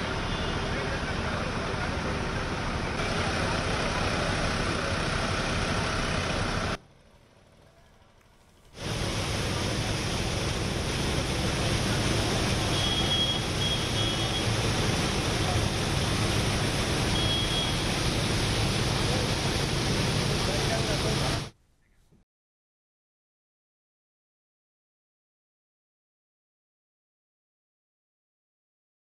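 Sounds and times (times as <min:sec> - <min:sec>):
loud rushing noise: 0:08.8 - 0:21.6.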